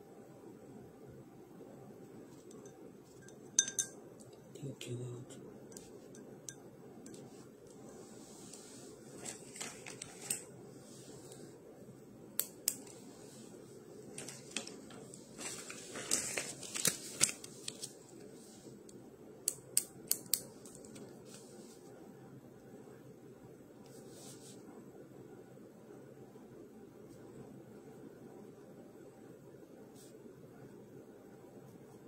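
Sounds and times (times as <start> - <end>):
low room hum: 0.0 - 32.0
handling clicks and rustles: 9.1 - 10.5, 14.0 - 18.0.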